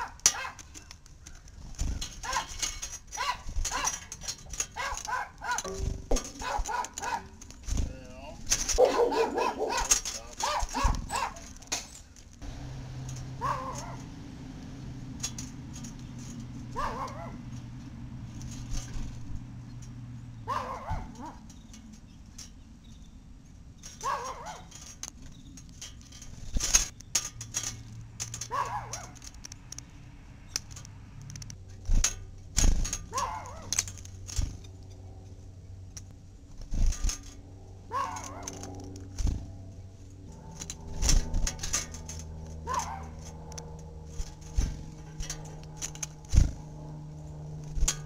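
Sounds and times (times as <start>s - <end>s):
low steady hum: 0.8s - 48.0s
dog barking: 2.2s - 2.5s, 3.2s - 4.0s, 4.8s - 5.7s, 6.4s - 7.3s, 8.8s - 11.4s, 13.4s - 14.1s, 16.8s - 17.4s, 20.5s - 21.4s, 24.0s - 24.7s, 28.5s - 29.2s, 33.1s - 33.7s, 37.9s - 38.6s, 42.6s - 43.2s.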